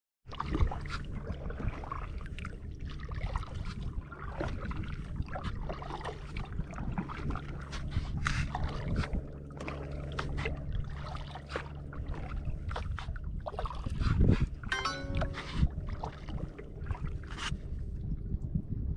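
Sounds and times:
paddle splashing in water: 0.3s - 17.6s.

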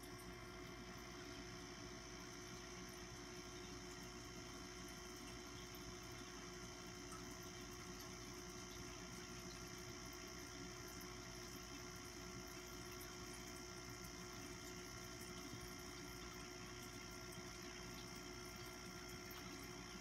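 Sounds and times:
faint machine hum: 0.0s - 20.0s.

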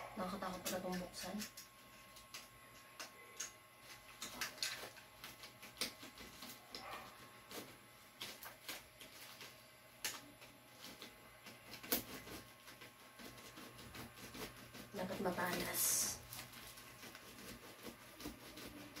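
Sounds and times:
blade scraping plastic wrapping: 3.8s - 19.0s.

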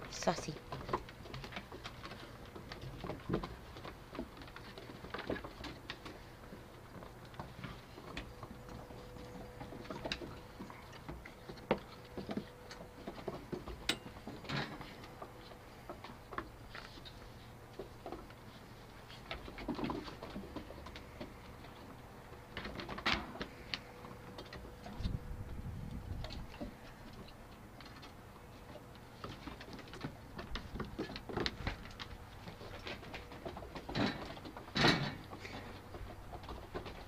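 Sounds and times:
puppies scuffling: 0.4s - 25.5s
paws clicking on wooden boards: 0.6s - 37.0s.

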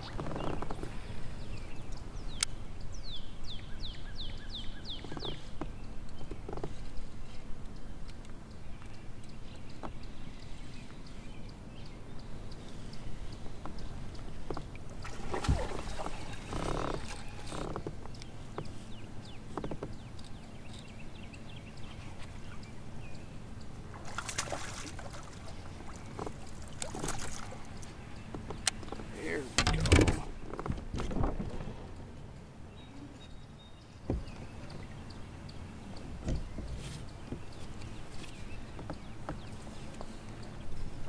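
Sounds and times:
water splashing: 15.0s - 17.5s, 23.9s - 27.8s.

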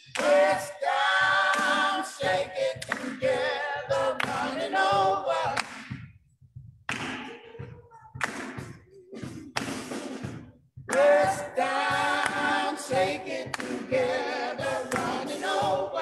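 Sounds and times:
choir and congregation singing: 0.0s - 5.9s, 10.9s - 16.0s
drum kit beat: 0.0s - 16.0s.

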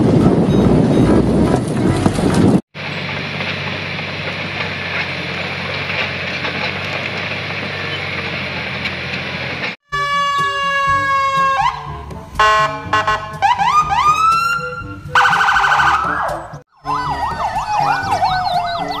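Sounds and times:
police car siren: 9.9s - 19.0s.

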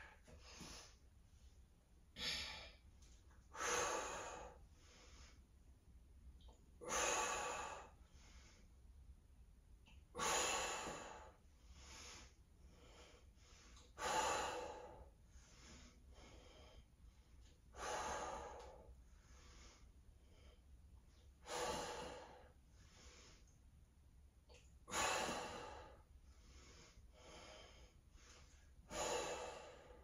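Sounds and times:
quiet inhales: 10.2s - 20.8s, 21.4s - 23.6s, 24.9s - 30.0s.

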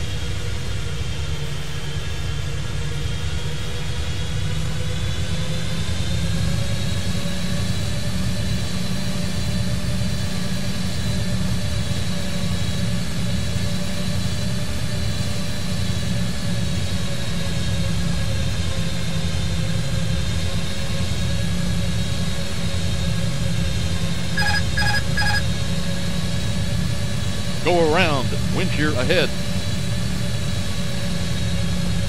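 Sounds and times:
faint engine whines: 0.0s - 32.0s
low rumble of jet engines: 0.0s - 32.0s.

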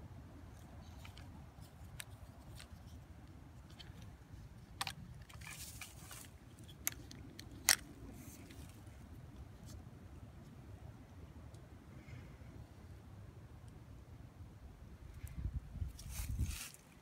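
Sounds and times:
short rustle: 15.9s - 17.0s.

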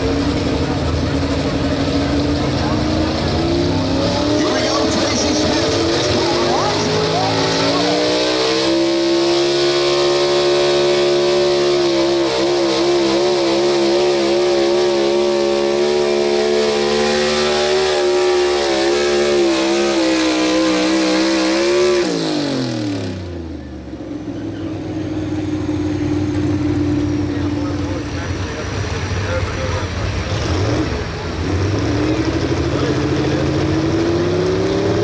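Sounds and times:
truck engine at high revs: 0.0s - 35.0s
engine idling low: 23.2s - 30.3s.

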